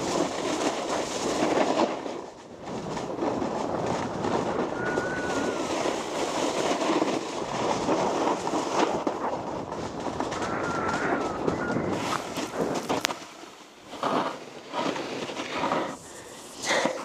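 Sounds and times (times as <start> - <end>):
snowboard scraping over snow: 0.0 - 17.0
faint thin squeal: 4.7 - 6.0, 10.3 - 12.6.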